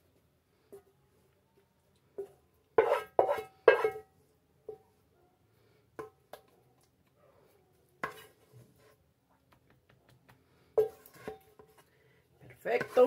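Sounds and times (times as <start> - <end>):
faint scrapes in pot: 2.0 - 6.0, 7.2 - 9.1, 10.5 - 13.0.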